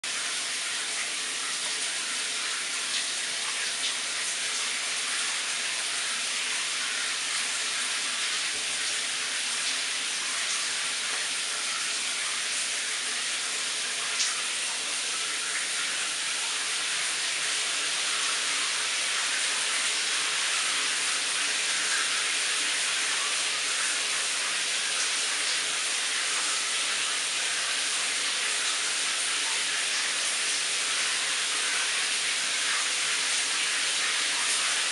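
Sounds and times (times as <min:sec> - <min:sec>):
shower water spraying on tiles: 0:00.0 - 0:34.9.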